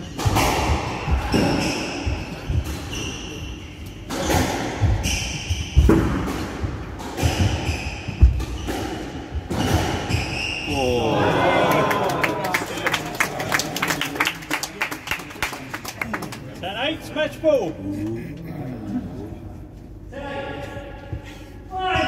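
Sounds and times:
squash ball smacking rackets and walls: 0.0s - 10.7s.

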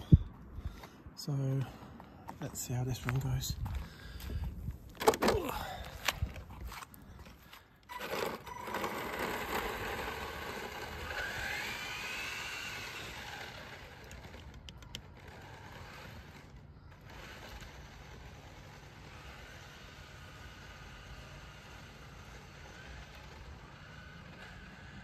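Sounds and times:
electric motor and gears whining: 0.0s - 25.0s
toy car set down with a clack: 5.0s - 5.4s.

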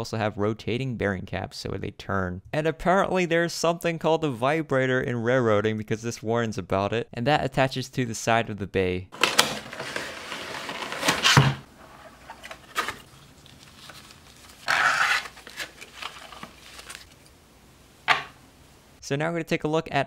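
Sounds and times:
plastic packaging rustling: 9.2s - 17.5s.

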